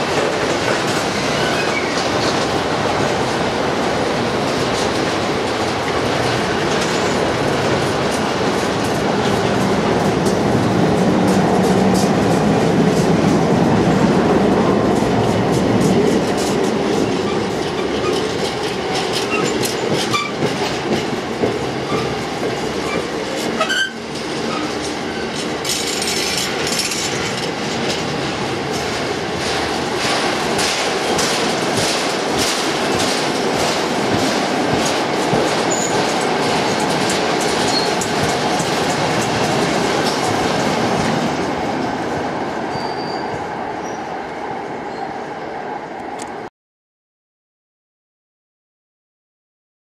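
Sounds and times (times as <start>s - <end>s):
train wheels clacking over rail joints: 0.0s - 14.2s, 14.9s - 42.0s
train wheel squeals: 1.3s - 2.1s, 19.1s - 20.5s, 22.8s - 27.0s, 35.7s - 36.0s, 37.6s - 38.1s, 42.7s - 44.1s.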